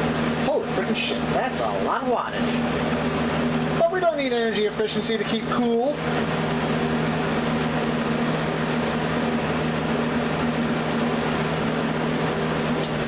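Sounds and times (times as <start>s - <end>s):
fan motor hum: 0.0s - 13.0s
rush of air from fan: 6.0s - 13.0s.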